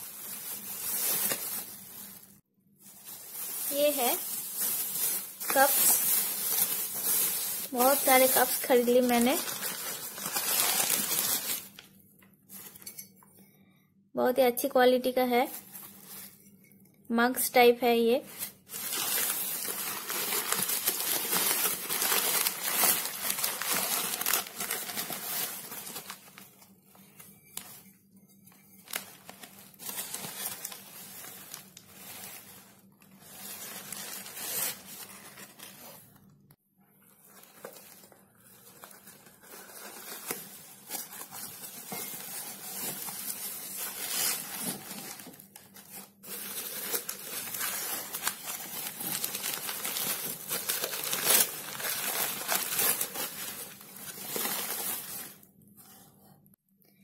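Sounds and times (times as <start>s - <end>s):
bags and newspaper crinkling: 0.0s - 11.9s, 18.3s - 27.8s, 28.7s - 36.2s, 37.1s - 55.5s.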